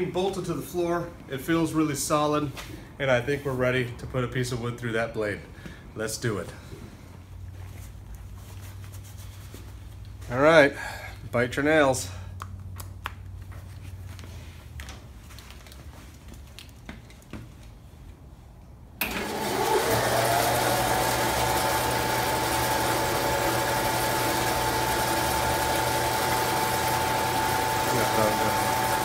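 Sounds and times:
bandsaw motor whirring: 0:19.0 - 0:29.0.

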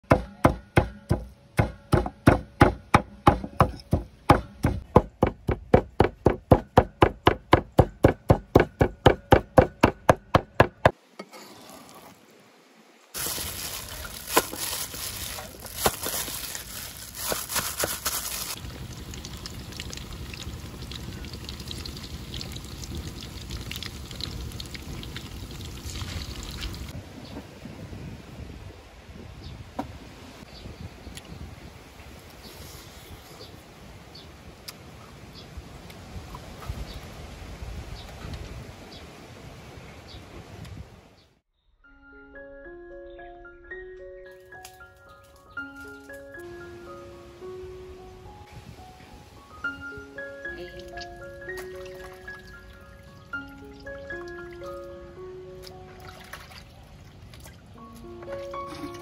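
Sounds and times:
food frying in hot oil: 0:17.9 - 0:26.9.

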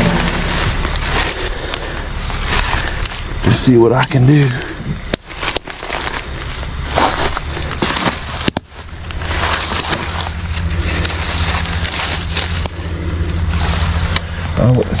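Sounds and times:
close crackling and rustling: 0:00.0 - 0:15.0
truck engine idling: 0:00.0 - 0:15.0.

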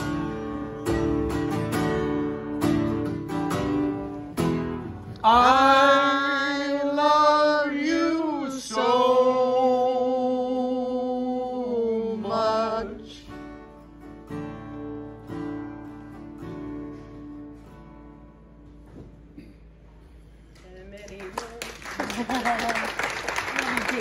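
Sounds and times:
strummed acoustic string instrument: 0:00.0 - 0:05.7
man singing: 0:05.2 - 0:13.4.

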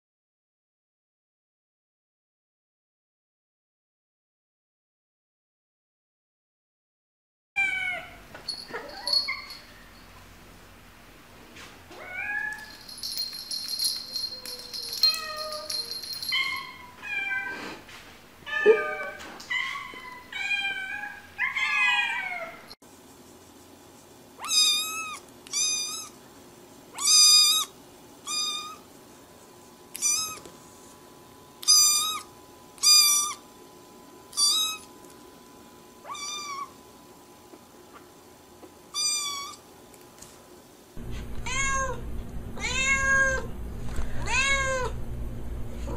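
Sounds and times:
cats meowing: 0:14.1 - 0:17.6, 0:18.5 - 0:22.7, 0:24.4 - 0:26.2, 0:30.0 - 0:30.5, 0:36.0 - 0:36.8, 0:41.4 - 0:42.0, 0:42.6 - 0:43.5, 0:44.2 - 0:44.9.

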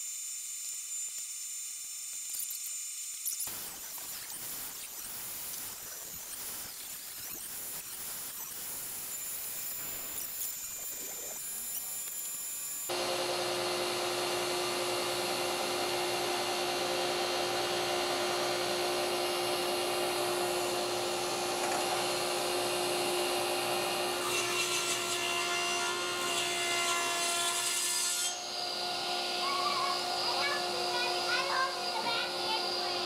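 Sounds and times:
saw cutting wood: 0:00.0 - 0:33.0
table saw blade humming: 0:06.7 - 0:33.0.

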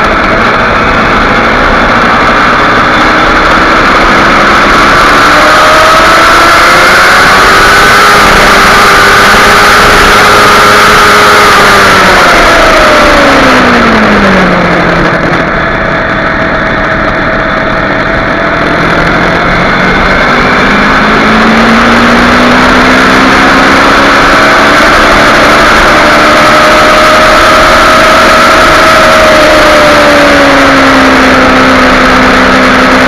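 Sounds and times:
motorcycle engine revving: 0:00.0 - 0:33.0
wind noise on microphone: 0:00.0 - 0:33.0.

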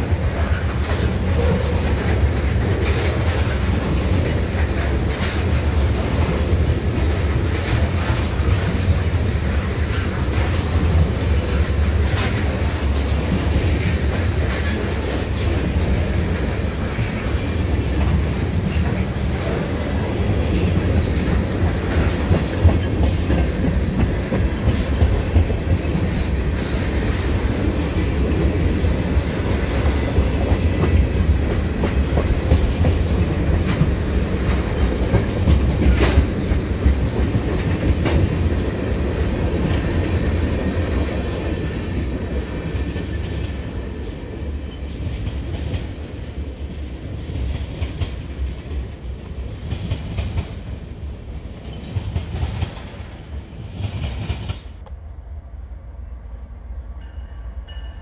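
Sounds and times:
wheels clacking over rail joints: 0:00.0 - 0:43.6
freight train rumble: 0:00.0 - 0:58.0.

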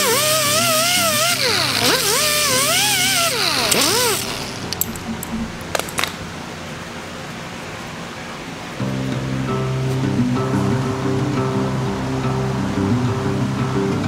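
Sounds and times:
sanding disc whining against steel: 0:00.0 - 0:05.2
sharp clicks: 0:00.1 - 0:06.3
background music: 0:08.8 - 0:14.0.

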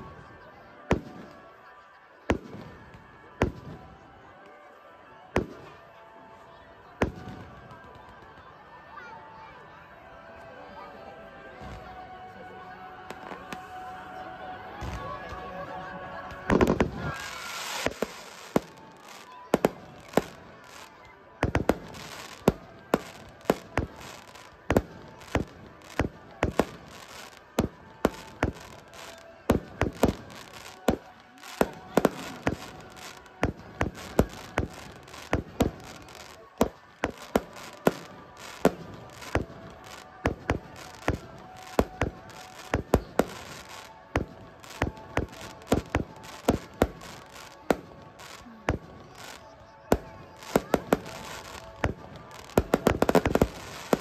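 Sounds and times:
fireworks bursting with sharp bangs: 0:00.9 - 0:01.6, 0:02.3 - 0:04.0, 0:07.0 - 0:08.5, 0:16.4 - 0:54.0.

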